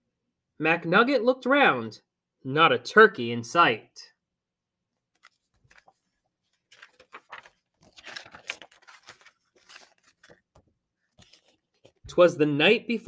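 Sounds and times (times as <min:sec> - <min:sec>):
book pages rustling: 0:05.1 - 0:12.1.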